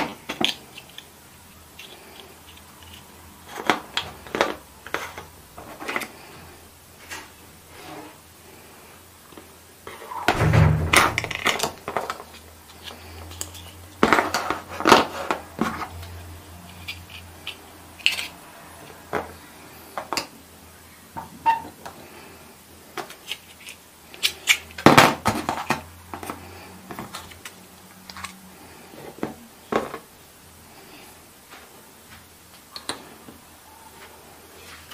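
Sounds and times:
plastic pieces clicking on wood: 0.0 - 1.1.

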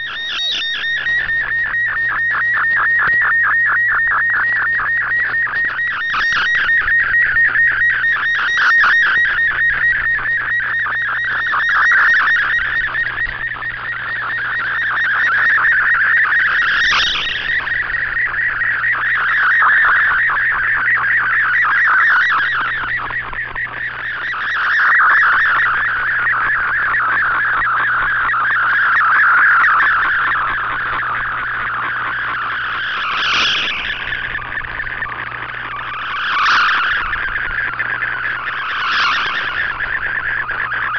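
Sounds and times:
warbling digital signal tone: 29.0 - 40.9.

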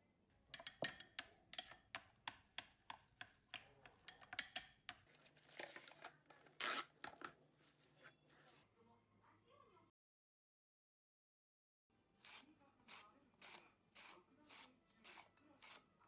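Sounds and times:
chopsticks beating egg in bowl: 0.5 - 5.1, 12.2 - 16.0
cling film tearing rasp: 6.5 - 7.0.

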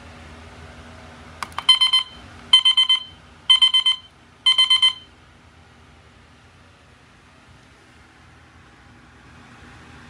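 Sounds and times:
button clicks: 1.4 - 1.8
alarm clock beeping: 1.6 - 5.1.

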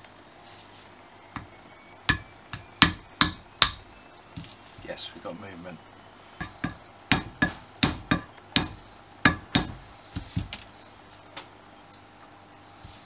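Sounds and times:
hammer tapping on nail: 2.1 - 3.8, 6.4 - 9.8.

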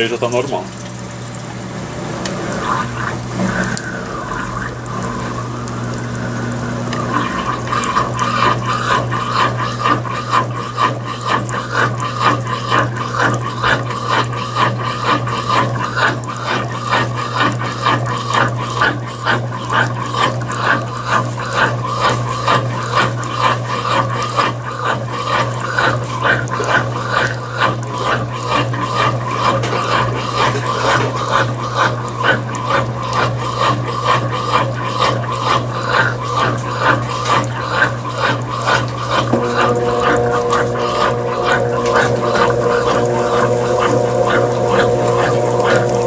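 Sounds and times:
washing machine humming: 0.0 - 46.0
water spraying onto clothes: 0.0 - 46.0.

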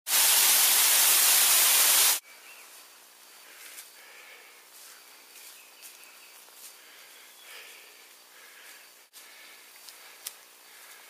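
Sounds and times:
loud static hiss: 0.1 - 2.2
faint rustling in dry leaves: 2.2 - 11.0
small birds chirping: 2.2 - 11.0.

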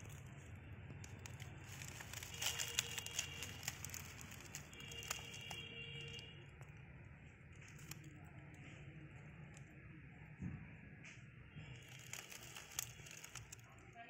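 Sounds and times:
dry leaves crackling: 0.0 - 8.2, 11.6 - 14.0.

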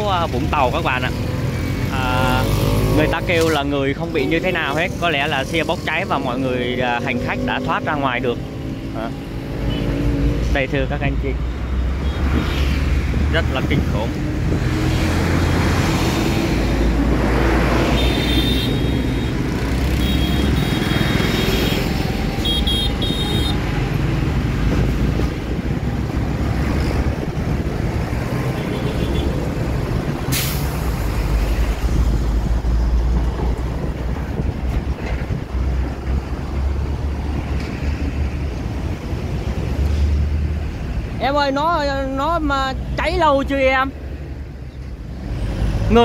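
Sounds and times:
deep traffic rumble: 0.0 - 46.0
highway traffic passing: 0.0 - 46.0
brief sharp hiss: 30.3 - 30.8.

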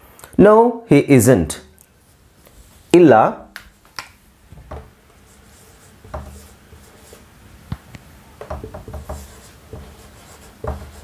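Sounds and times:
marker pen scratching on whiteboard: 4.6 - 11.0.

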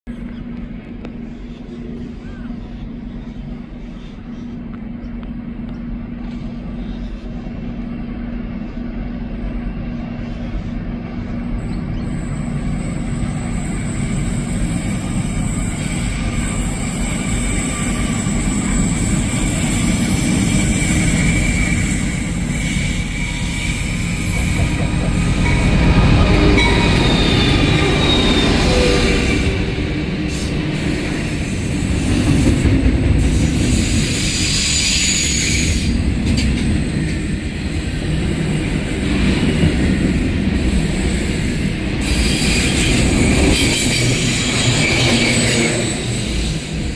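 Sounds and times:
diesel locomotive engines: 0.0 - 46.9
high-pitched wheel squeals: 26.4 - 29.5, 33.8 - 36.0.

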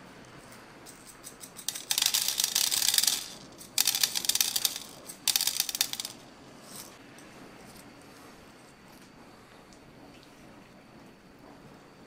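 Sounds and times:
spice berries rattling onto metal tray: 1.0 - 6.9.

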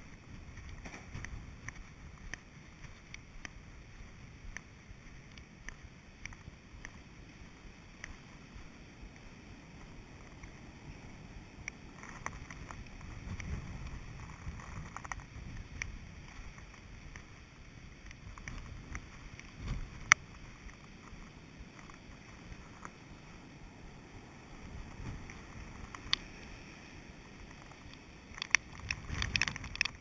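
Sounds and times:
wind buffeting camera: 0.0 - 30.0
sea surf: 5.9 - 14.4, 19.0 - 30.0
light clicks: 24.9 - 26.6.

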